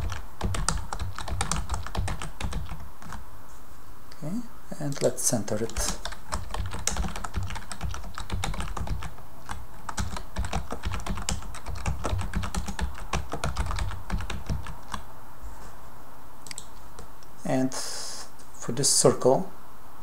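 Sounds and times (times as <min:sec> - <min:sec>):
typing on computer keyboard: 0:00.0 - 0:03.2, 0:04.9 - 0:15.0.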